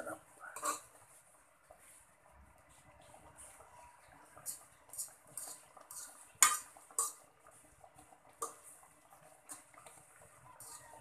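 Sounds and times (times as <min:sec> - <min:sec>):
metal fork scraping a wok: 0:00.5 - 0:01.0, 0:04.4 - 0:07.3, 0:08.4 - 0:08.8, 0:09.4 - 0:11.0.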